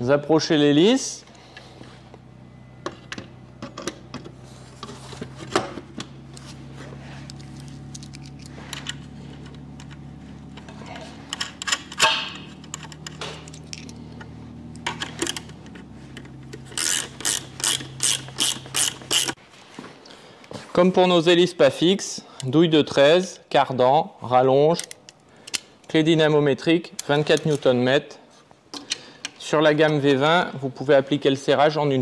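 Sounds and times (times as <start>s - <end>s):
steady low hum: 0.6s - 20.5s.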